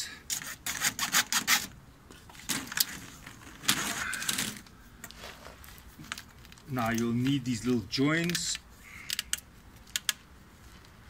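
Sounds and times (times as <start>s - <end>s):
hacksaw cutting plastic: 0.3s - 1.7s.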